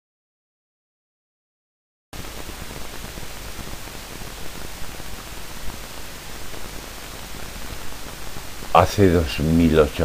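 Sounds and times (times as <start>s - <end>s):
microphone hiss: 2.2s - 10.0s
thin high whine: 2.2s - 10.0s.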